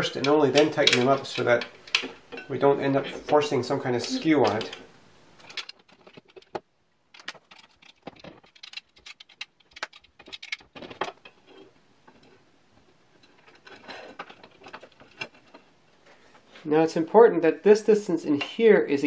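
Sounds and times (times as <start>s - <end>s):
metal rails clicking and clinking: 0.0s - 3.4s, 5.4s - 6.5s.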